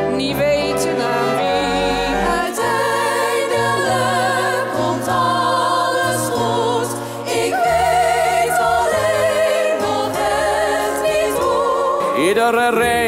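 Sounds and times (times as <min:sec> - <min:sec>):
orchestral accompaniment: 0:00.0 - 0:05.8
choir singing held notes: 0:00.0 - 0:13.0.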